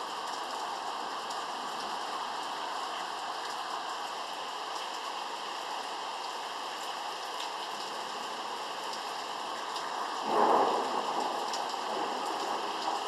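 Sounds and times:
steady rain: 0.0s - 13.0s
thunder clap: 10.1s - 13.0s.

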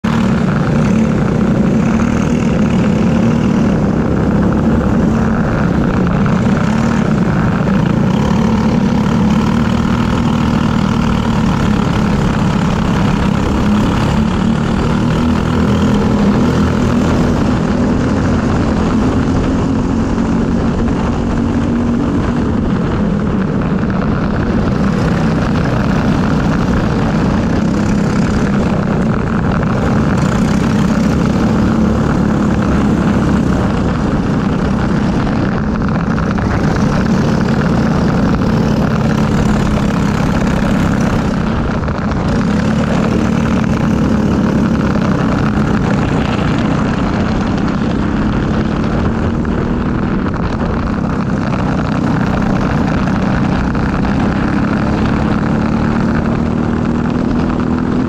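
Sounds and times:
kart engine running hard: 0.0s - 58.0s.

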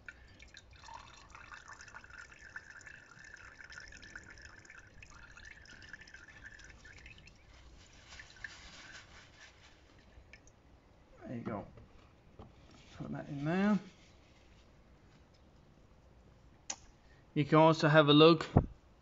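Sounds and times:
fuel trickling and dripping: 0.0s - 10.6s.

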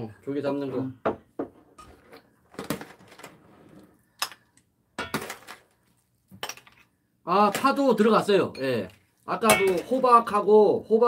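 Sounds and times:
metal ladle clinking on pot and bowls: 9.4s - 10.1s.

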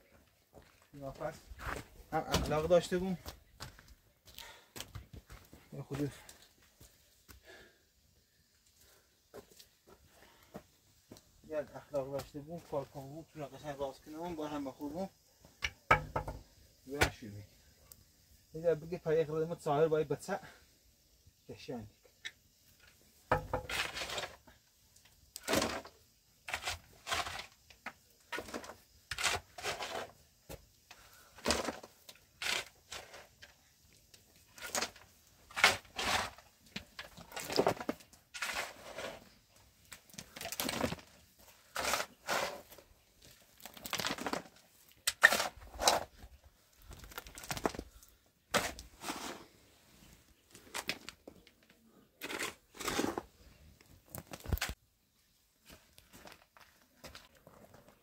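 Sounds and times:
shovel scraping gravelly soil: 23.6s - 24.5s, 25.4s - 30.3s, 31.1s - 33.6s, 34.4s - 51.2s, 52.1s - 53.6s.

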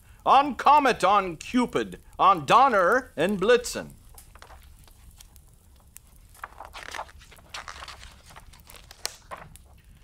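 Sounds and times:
book pages turning: 4.1s - 10.0s.

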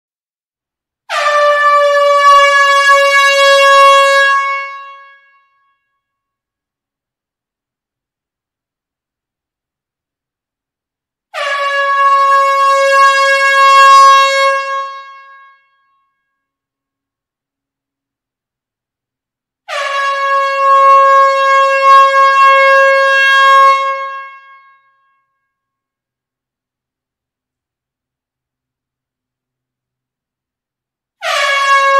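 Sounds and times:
air horn blast: 1.1s - 5.5s, 11.3s - 15.7s, 19.7s - 24.9s, 31.2s - 31.9s.

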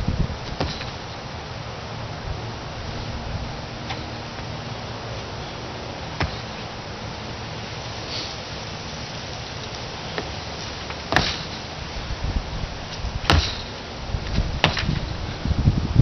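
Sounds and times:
steady background hiss: 0.0s - 16.0s
feet thumping on wooden deck: 0.4s - 1.1s, 6.1s - 6.7s, 10.1s - 15.4s.

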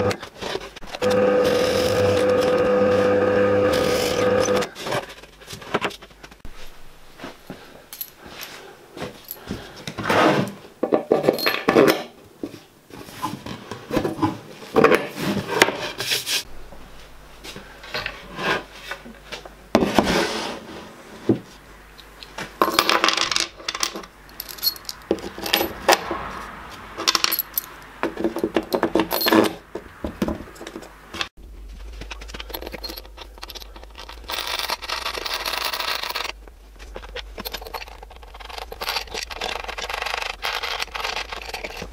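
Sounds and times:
steel bolts and washers clinking: 11.0s - 12.1s, 22.0s - 26.0s, 27.0s - 29.6s, 32.2s - 36.4s, 37.0s - 41.9s.

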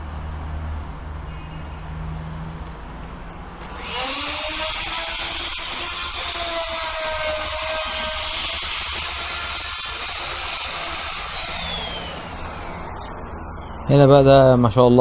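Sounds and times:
router motor whining: 3.6s - 13.9s.

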